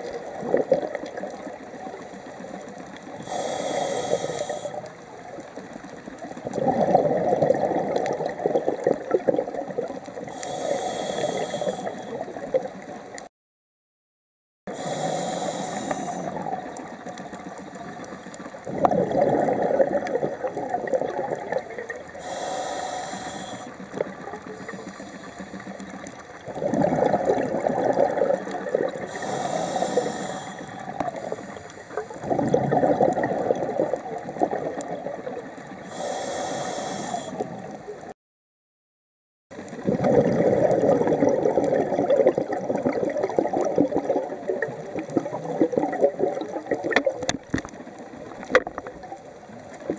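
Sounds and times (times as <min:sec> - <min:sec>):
regulator inhalation hiss: 0:03.2 - 0:04.9, 0:10.4 - 0:12.2, 0:14.7 - 0:16.5, 0:22.2 - 0:23.9, 0:24.6 - 0:25.7, 0:29.0 - 0:32.1, 0:35.8 - 0:37.6
exhaust bubbling underwater: 0:06.2 - 0:10.4, 0:18.0 - 0:22.3, 0:25.9 - 0:31.4, 0:32.0 - 0:36.0, 0:39.5 - 0:49.9.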